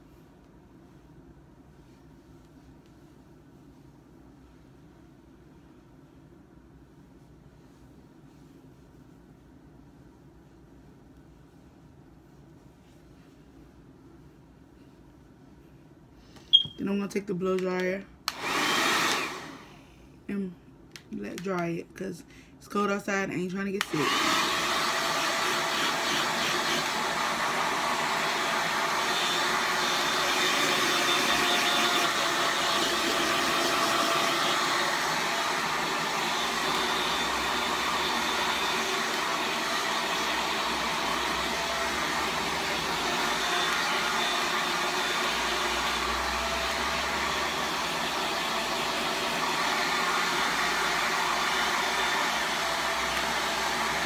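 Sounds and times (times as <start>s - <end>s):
hair dryer blowing air: 17.6s - 19.8s, 23.8s - 54.0s.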